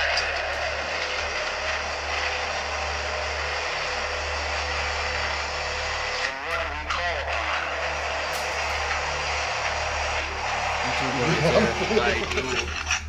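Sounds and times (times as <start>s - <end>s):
low hum: 0.0s - 13.0s
radio static hiss: 0.0s - 13.0s
voice fragment: 10.8s - 12.8s.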